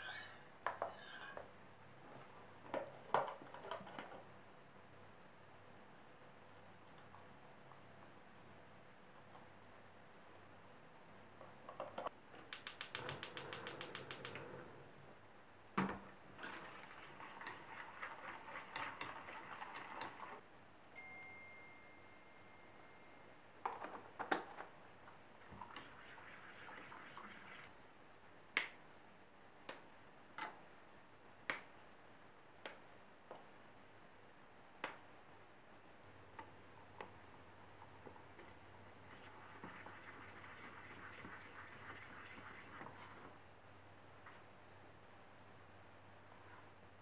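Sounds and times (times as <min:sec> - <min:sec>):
sharp clicks: 0:12.5 - 0:14.4
whisk clicking and scraping in pan: 0:16.4 - 0:20.4.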